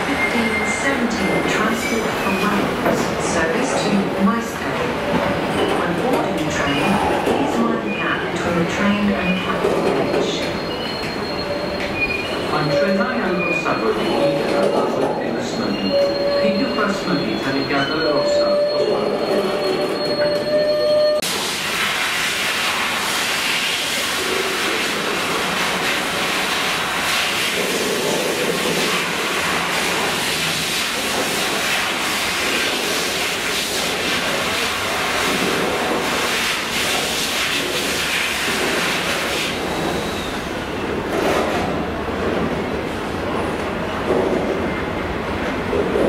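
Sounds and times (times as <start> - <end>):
freight train wheels rumbling: 23.8 - 46.0.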